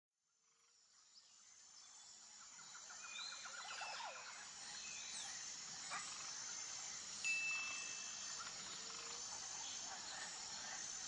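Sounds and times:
high-pitched insect drone: 0:03.1 - 0:11.0.

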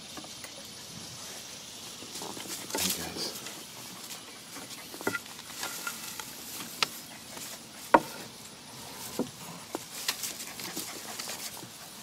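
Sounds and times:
puppies tapping on a porch: 0:02.0 - 0:08.4, 0:09.0 - 0:12.0.

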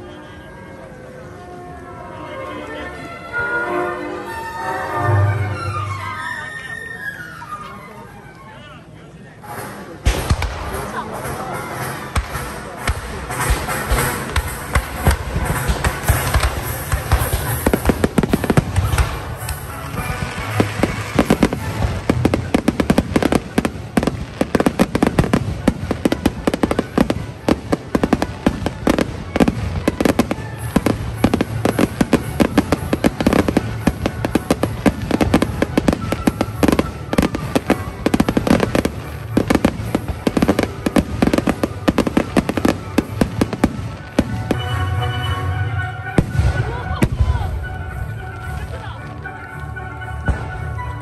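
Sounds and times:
music playing: 0:00.0 - 0:51.0
fireworks bangs and crackles: 0:09.4 - 0:51.0.

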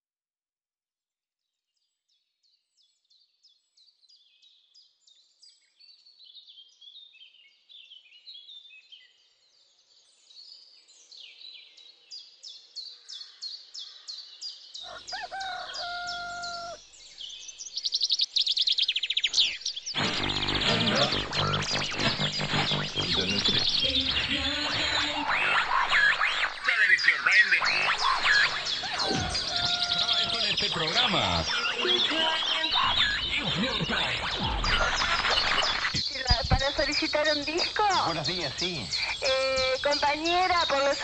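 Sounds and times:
small birds chirping: 0:01.8 - 0:41.0
rooster crowing: 0:14.8 - 0:16.8, 0:28.3 - 0:30.6.

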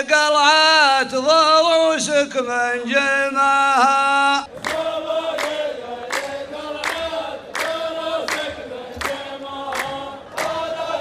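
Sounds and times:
men chanting in unison: 0:02.0 - 0:11.0
hand claps in unison: 0:04.6 - 0:11.0.

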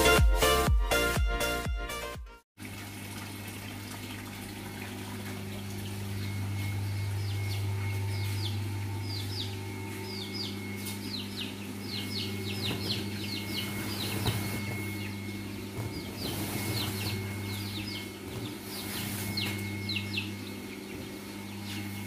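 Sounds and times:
steady low hum: 0:03.1 - 0:22.0
chicks peeping: 0:07.2 - 0:22.0.

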